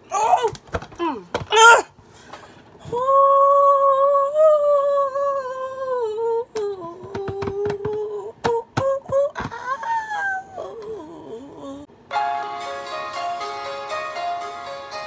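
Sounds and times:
woman humming: 2.8 - 11.9.

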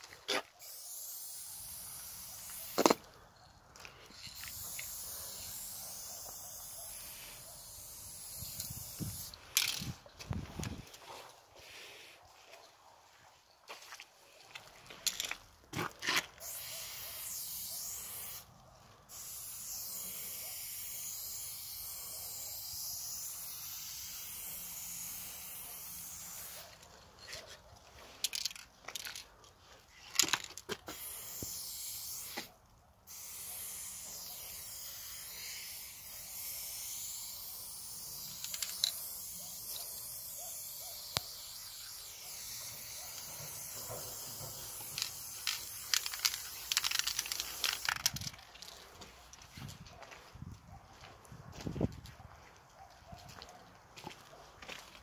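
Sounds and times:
spray paint can hissing: 0.6 - 3.1, 4.0 - 10.8, 16.3 - 26.8, 28.0 - 29.2, 30.1 - 48.7.

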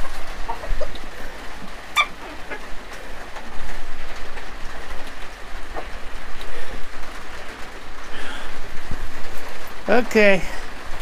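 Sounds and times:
rain on a roof: 0.0 - 11.0.

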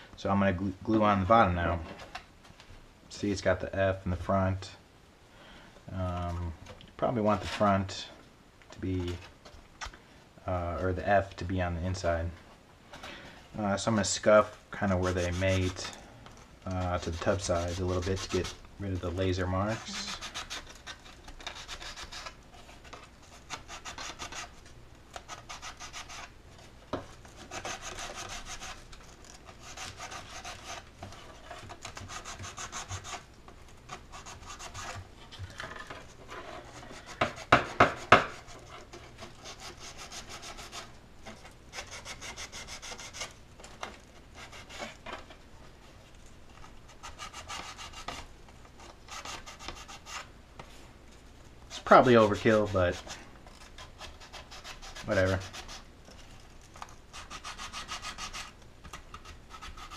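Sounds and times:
sandpaper rasping on wood: 14.9 - 15.9, 16.7 - 22.4, 23.4 - 24.6, 25.2 - 26.3, 27.4 - 28.9, 29.5 - 30.8, 31.6 - 33.2, 34.0 - 35.0, 36.5 - 43.4, 47.0 - 48.2, 51.7 - 53.2, 53.8 - 55.9, 57.1 - 58.6, 59.2 - 59.9.

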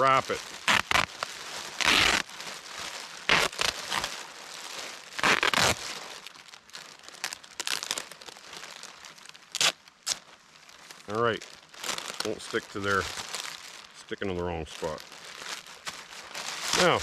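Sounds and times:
duct tape ripping off roll: 0.0 - 2.3, 3.2 - 4.2, 5.1 - 6.0, 7.1 - 8.4, 9.5 - 10.3, 14.8 - 17.0
plastic bag crinkling: 0.0 - 17.0.

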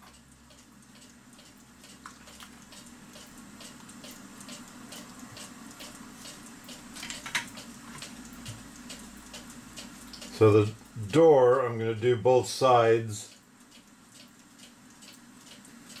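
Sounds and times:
faint light ticking: 0.0 - 12.2, 13.3 - 16.0
steady low hum: 0.0 - 16.0.

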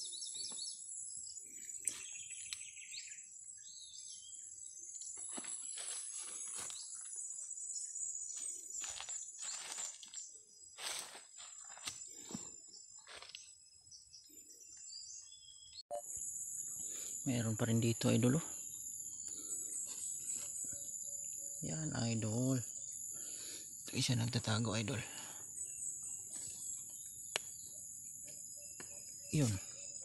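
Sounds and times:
insect trill: 0.0 - 14.6, 15.9 - 30.0
bird chirps: 0.0 - 30.0
dry leaves rustling: 8.8 - 10.2.

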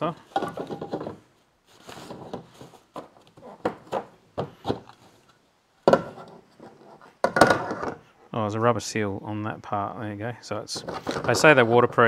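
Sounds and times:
plastic rubbing: 0.2 - 5.3, 5.9 - 8.1, 10.7 - 12.0
hard plastic knocks and scrapes: 0.3 - 5.1, 5.8 - 8.1, 10.7 - 12.0.

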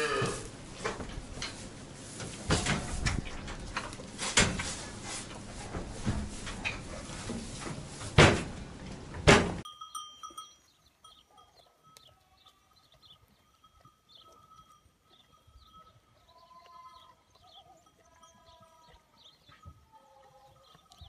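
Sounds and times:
loud thumps: 8.1 - 9.6.

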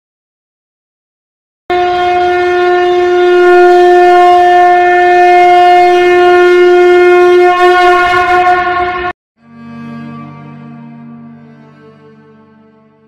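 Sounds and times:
conch shell blown: 1.7 - 9.2.

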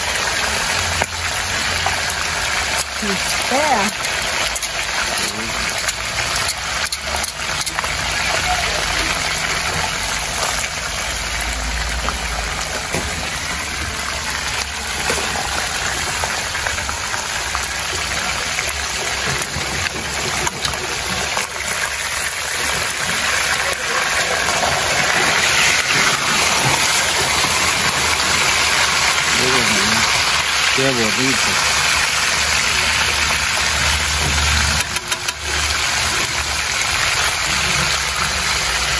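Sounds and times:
fish sizzling in hot oil: 0.0 - 38.9
metal spatula clicking on pan: 34.8 - 35.5.

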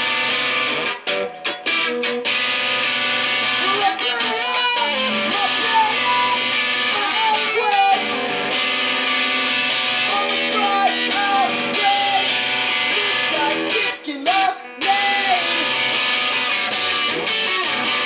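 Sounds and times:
electric guitar strumming: 0.0 - 18.0
man singing: 3.6 - 8.3, 10.0 - 15.9.

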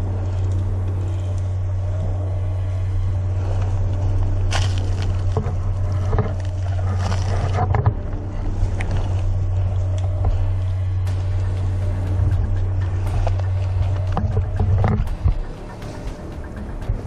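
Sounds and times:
low rumble: 0.0 - 17.0
dry leaves crunching underfoot: 2.4 - 14.6.

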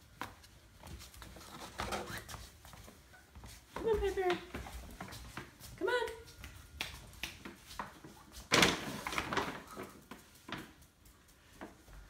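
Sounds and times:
plastic bag crinkling: 8.5 - 10.1.

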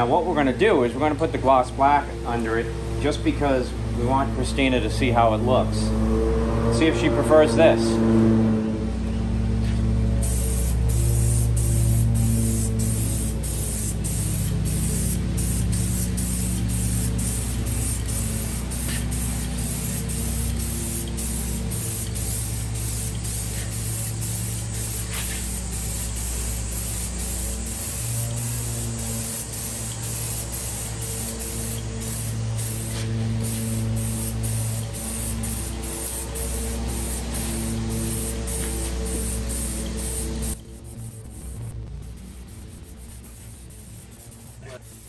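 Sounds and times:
aerosol spray can hissing: 10.2 - 45.0.

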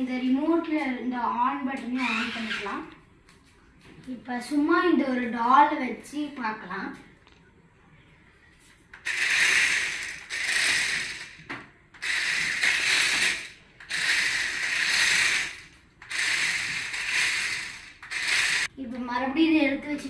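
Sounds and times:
toy car motor whirring: 2.0 - 2.7, 9.0 - 11.4, 12.0 - 18.7.

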